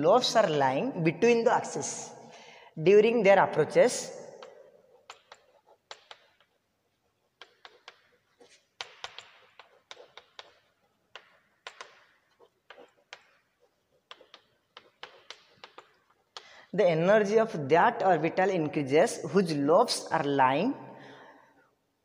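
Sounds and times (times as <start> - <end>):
chalk scratching on blackboard: 3.8 - 16.4
chalk tapping on blackboard: 4.4 - 16.6.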